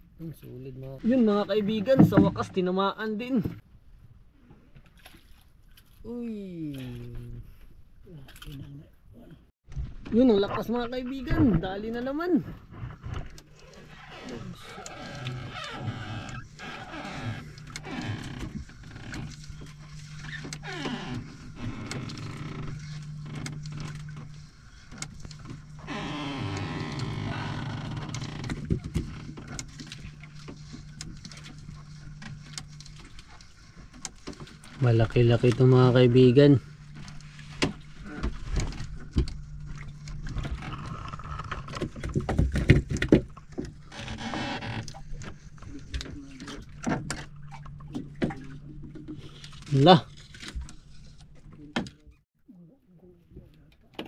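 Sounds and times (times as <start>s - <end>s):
steady low hum: 12.5s - 53.9s.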